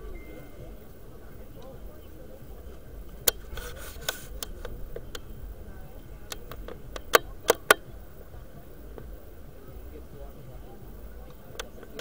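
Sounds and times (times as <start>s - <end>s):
low background noise: 0.0s - 12.0s
sharp irregular clicks: 2.7s - 8.0s.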